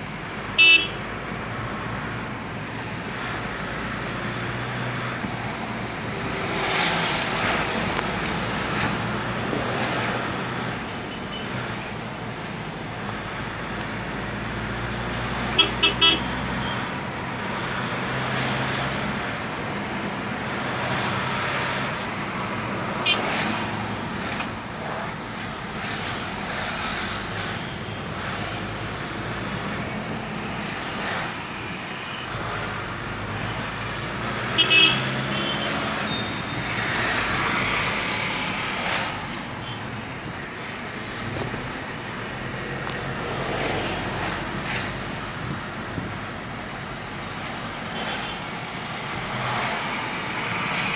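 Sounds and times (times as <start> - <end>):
road traffic from inside car: 0.0 - 50.9
vehicle horn toots: 0.6 - 1.0, 15.6 - 16.8, 34.6 - 36.5.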